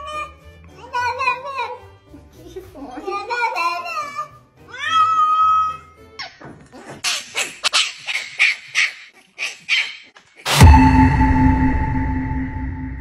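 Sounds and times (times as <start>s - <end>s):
cat meowing: 3.9s - 5.9s
dog barking: 7.0s - 10.0s.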